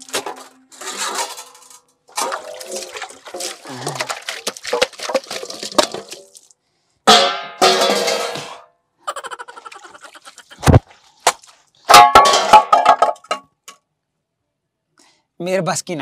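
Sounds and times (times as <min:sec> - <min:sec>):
metal bowl clattering: 0:00.0 - 0:06.5, 0:07.1 - 0:08.6, 0:11.9 - 0:13.5
water splashing: 0:02.1 - 0:06.6, 0:09.4 - 0:11.7.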